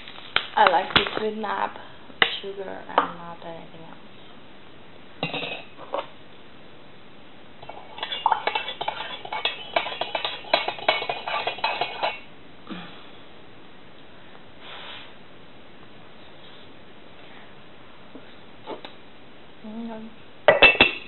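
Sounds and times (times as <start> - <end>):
spoon clinking against cup: 7.6 - 12.2.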